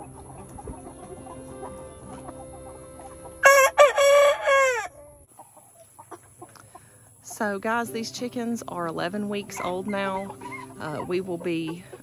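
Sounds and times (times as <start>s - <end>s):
chickens clucking softly: 0.0s - 7.2s, 9.6s - 12.0s
rooster crowing: 2.4s - 5.2s.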